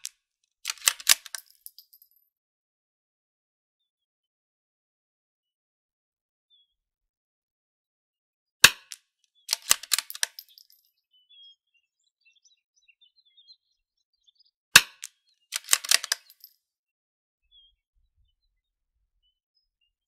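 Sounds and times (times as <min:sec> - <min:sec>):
rifle bolt metallic clicks: 0:00.7 - 0:01.9, 0:08.7 - 0:10.8, 0:14.8 - 0:16.5
bird chirps: 0:06.5 - 0:06.8, 0:09.3 - 0:16.5, 0:17.4 - 0:20.0
rifle shots: 0:08.7 - 0:10.4, 0:14.8 - 0:16.4.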